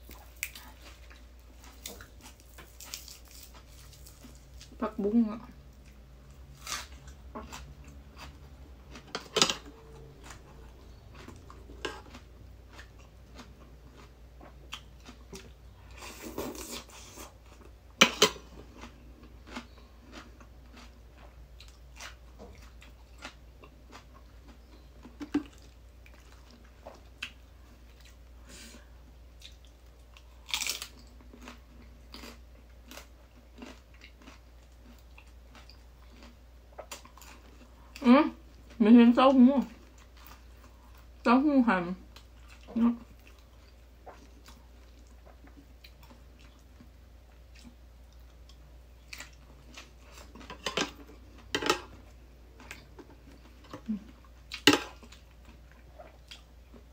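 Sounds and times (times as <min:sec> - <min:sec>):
crunchy chewing: 0:00.0 - 0:04.8, 0:05.8 - 0:28.2, 0:29.3 - 0:38.8.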